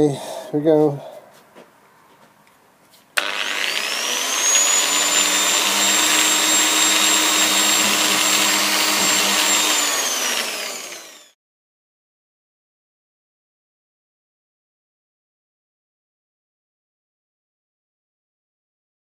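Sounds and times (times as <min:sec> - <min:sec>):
angle grinder sander whining: 0:03.2 - 0:11.4.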